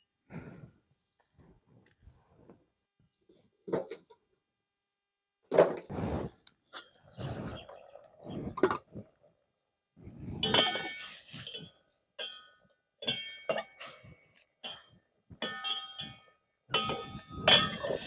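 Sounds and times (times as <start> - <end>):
metal spatula scraping a pot: 10.4 - 12.4, 16.8 - 18.0.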